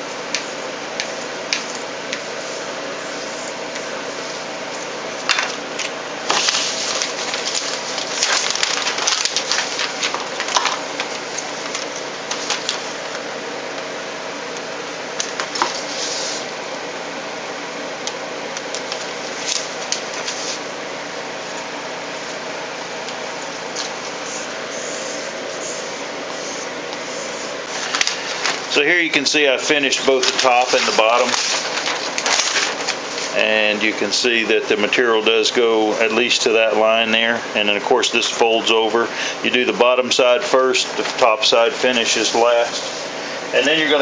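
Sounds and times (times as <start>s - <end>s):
steady background hum: 0.0s - 44.0s
adhesive tape and fabric rustling: 30.1s - 33.4s.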